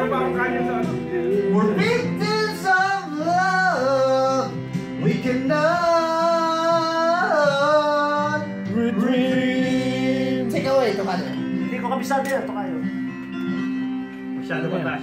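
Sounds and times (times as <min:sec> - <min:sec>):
backing track with guitar: 0:00.0 - 0:15.0
man singing into a microphone: 0:00.2 - 0:11.4.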